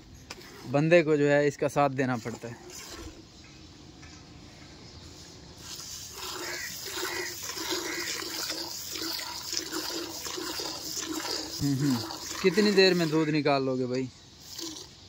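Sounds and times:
milk squirting into bucket: 0:05.6 - 0:13.4, 0:14.4 - 0:14.9.

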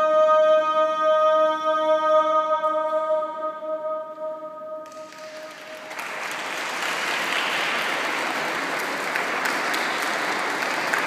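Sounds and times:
crowd applause: 0:05.0 - 0:11.0.

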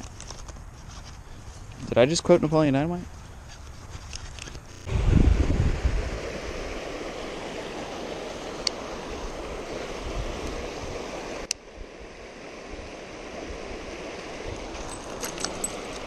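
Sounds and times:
creek water rushing over rocks: 0:05.6 - 0:16.0.

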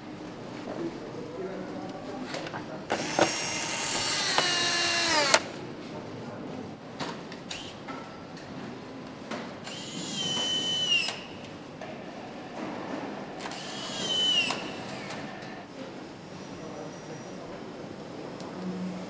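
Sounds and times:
assembly hall noise: 0:00.0 - 0:19.0
power screwdriver whirring: 0:02.9 - 0:05.4, 0:09.7 - 0:11.2, 0:13.4 - 0:15.3.

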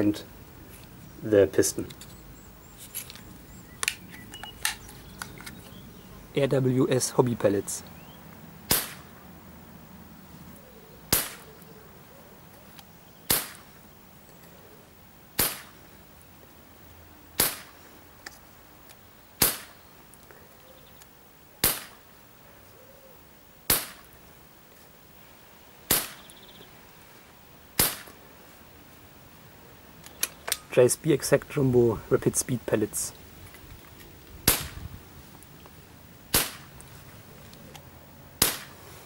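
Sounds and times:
air pistol shots: 0:08.7 - 0:09.1, 0:11.1 - 0:11.5, 0:13.3 - 0:13.7, 0:15.4 - 0:15.8, 0:17.4 - 0:17.8, 0:19.4 - 0:19.8, 0:21.6 - 0:22.0, 0:23.7 - 0:24.1, 0:25.9 - 0:26.3, 0:27.8 - 0:28.2, 0:34.4 - 0:34.8, 0:36.3 - 0:36.7, 0:38.4 - 0:38.8.

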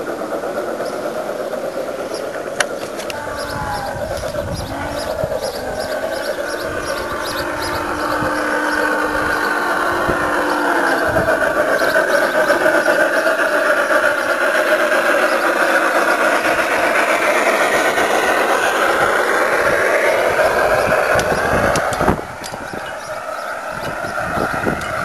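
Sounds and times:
model train rolling with whine: 0:00.0 - 0:25.0.

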